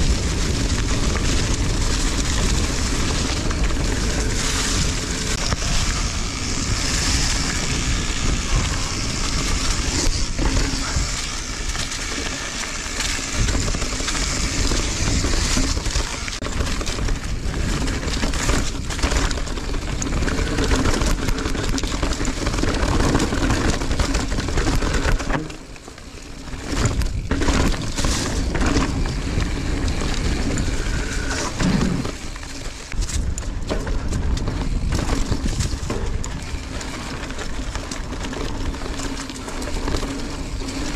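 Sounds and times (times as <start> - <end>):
bike knocking and rattling: 0.0 - 40.9
rushing noise of tyres and wind: 0.0 - 40.9.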